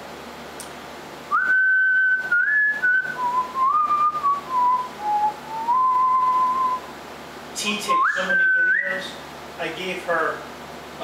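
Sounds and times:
person whistling a tune: 0:01.3 - 0:06.8, 0:08.0 - 0:09.0.

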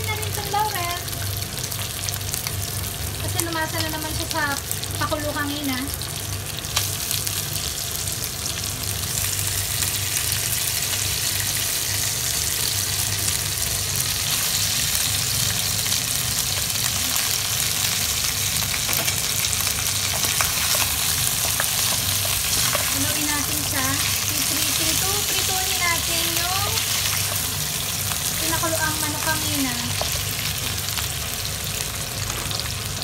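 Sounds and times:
chicken sizzling in hot oil: 0:00.0 - 0:33.0.

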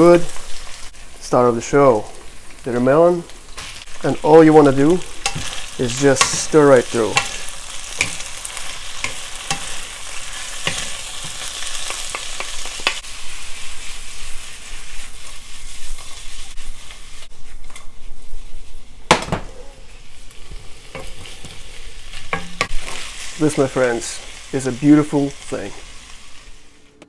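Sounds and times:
food sizzling in a wok: 0:00.0 - 0:26.9
spatula stirring food: 0:03.6 - 0:18.8.

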